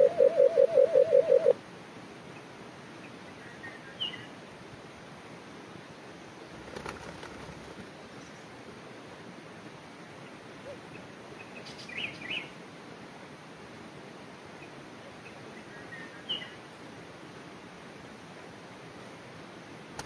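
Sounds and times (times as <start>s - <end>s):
bird chirps: 0.0s - 1.6s.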